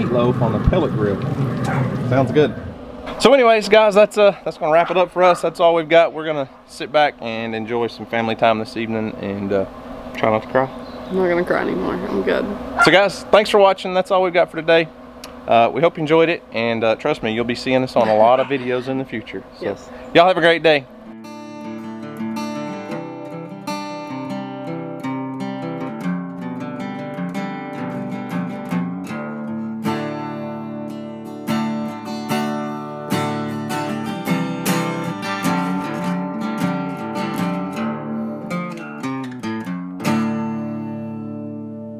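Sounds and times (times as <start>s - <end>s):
acoustic guitar playing: 0.0s - 41.9s.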